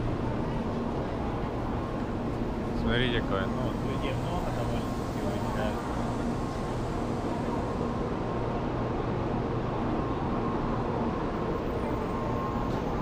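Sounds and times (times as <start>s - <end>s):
faint steady tones: 0.0s - 13.0s
train rumble and hum: 0.0s - 13.0s.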